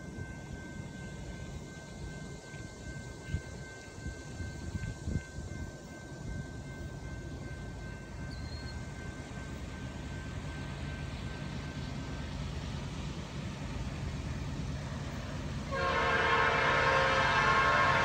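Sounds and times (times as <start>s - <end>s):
diesel locomotives rumbling: 0.0s - 18.0s
locomotive air horn chord: 15.6s - 18.0s.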